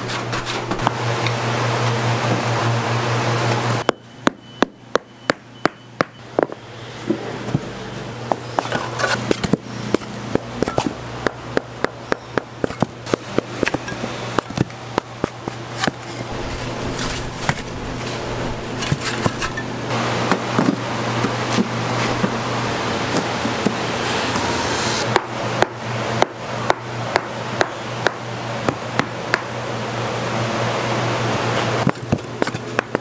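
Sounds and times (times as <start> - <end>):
low hum: 15.7 - 28.6.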